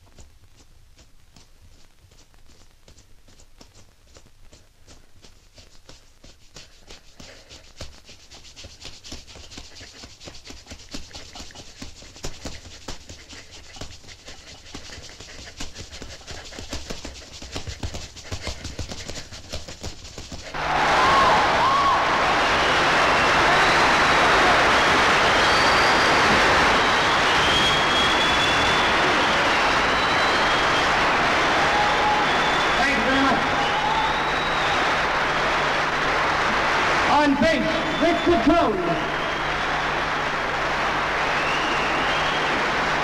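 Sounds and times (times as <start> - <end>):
loud rushing roar with whistle: 20.6 - 35.0, 41.2 - 43.0.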